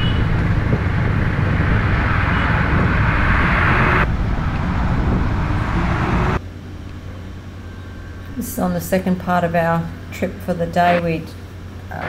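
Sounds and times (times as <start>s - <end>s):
wind and road noise: 0.0s - 8.4s
quiet steady hum: 4.0s - 12.0s.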